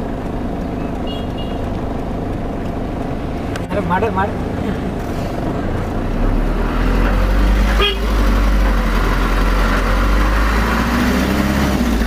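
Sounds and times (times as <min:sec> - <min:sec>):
vehicle engine rumbling: 0:00.0 - 0:12.0
brief horn toot: 0:07.8 - 0:08.1.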